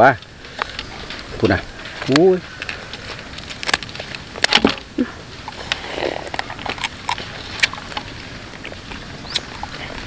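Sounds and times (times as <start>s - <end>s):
crab shell snipped and cracked: 3.4s - 4.8s.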